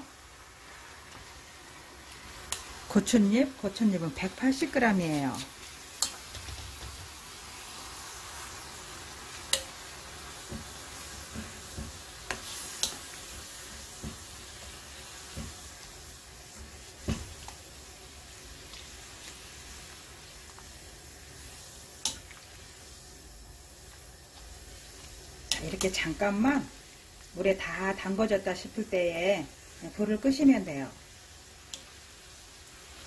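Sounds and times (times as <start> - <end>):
spoon clicking against pan: 2.5 - 2.7, 6.0 - 6.2, 9.5 - 9.8, 12.3 - 13.1, 22.0 - 22.3, 31.7 - 31.9
boiling water bubbling: 4.0 - 33.0.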